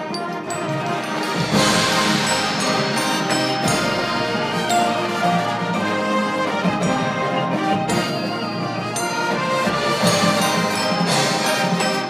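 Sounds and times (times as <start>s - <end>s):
marching band playing chords: 0.0s - 12.0s.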